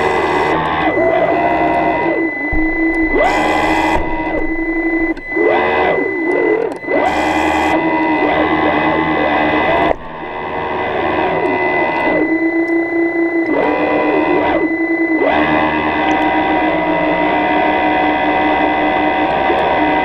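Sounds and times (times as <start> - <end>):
electric motors whining: 0.0 - 17.4
steady high thin tone: 1.0 - 6.2.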